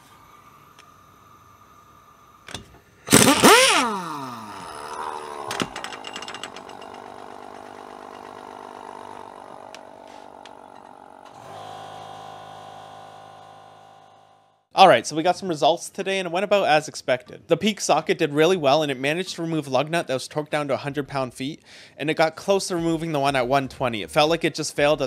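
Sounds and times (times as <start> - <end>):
impact wrench whirring: 2.4 - 14.4
impact wrench burst: 3.0 - 14.2.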